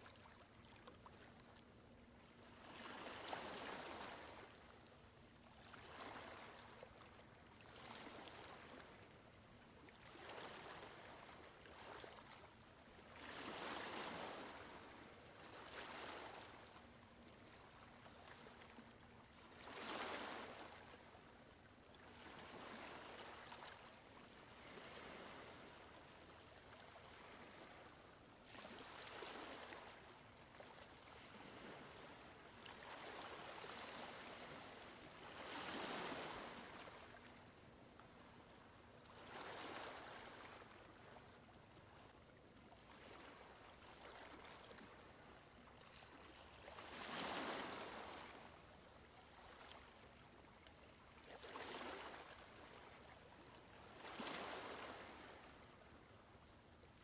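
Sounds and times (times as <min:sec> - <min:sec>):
gentle ocean waves: 0:00.0 - 0:57.0.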